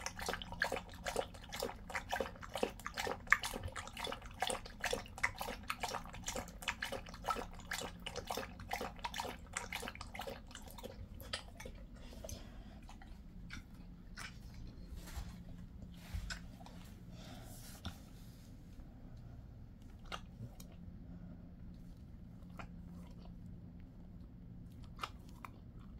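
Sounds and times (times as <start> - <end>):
dog lapping water from bowl: 0.0 - 14.8
dog licks and mouth clicks: 0.0 - 14.8, 19.8 - 20.8, 21.7 - 25.9.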